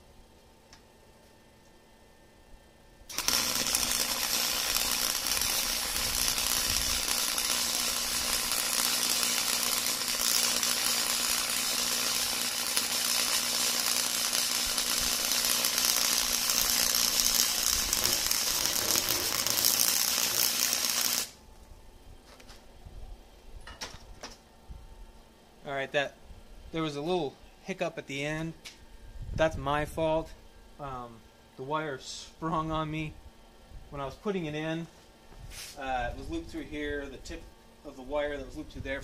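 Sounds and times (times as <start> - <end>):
welding arc crackling: 3.1 - 21.4
welding spatter: 3.1 - 21.4.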